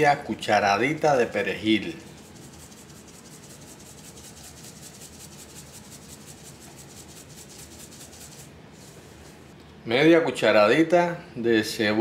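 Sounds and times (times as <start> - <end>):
dried flakes sprinkled rustling: 1.3 - 9.5.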